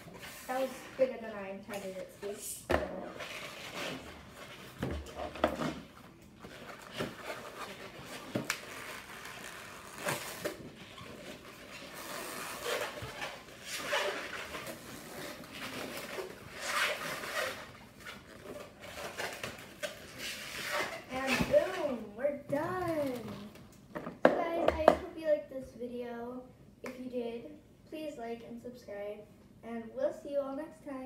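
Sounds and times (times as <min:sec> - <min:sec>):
balloons squeaking and rubbing: 0:00.0 - 0:01.1, 0:03.1 - 0:22.0.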